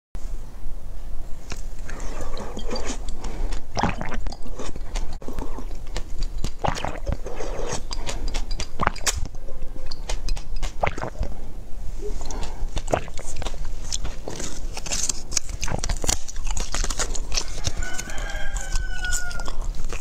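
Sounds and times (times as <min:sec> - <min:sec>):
person gulping and swallowing: 0:01.8 - 0:11.4, 0:12.0 - 0:14.8, 0:15.4 - 0:16.9.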